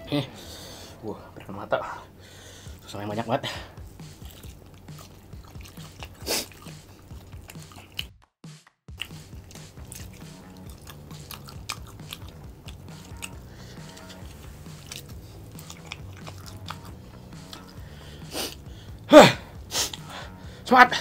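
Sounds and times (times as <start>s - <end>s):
quiet background music: 0.0s - 8.1s, 8.9s - 21.0s
close chewing and biting: 3.8s - 8.2s, 8.9s - 20.4s
person exclaiming: 19.1s - 19.5s.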